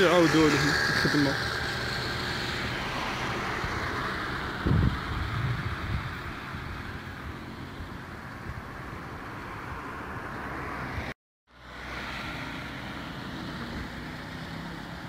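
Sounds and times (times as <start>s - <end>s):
wind buffeting microphone: 3.5s - 7.4s.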